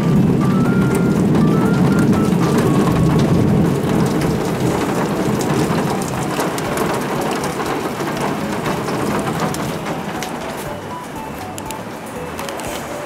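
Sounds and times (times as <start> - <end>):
rumble of thunder: 0.0 - 10.6
rain falling on concrete: 0.0 - 13.0.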